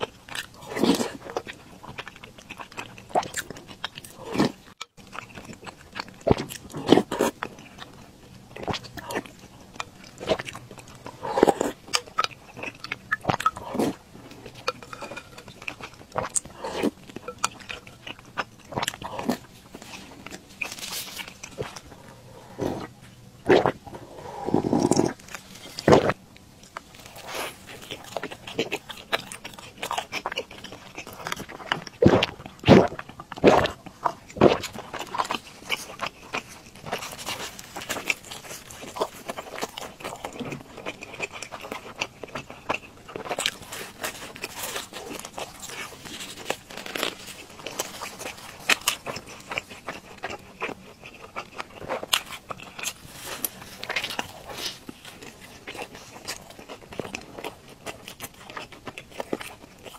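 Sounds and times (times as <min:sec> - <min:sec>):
crunchy chewing of pastry: 0:00.0 - 0:59.9
swallowing: 0:08.6 - 0:26.2.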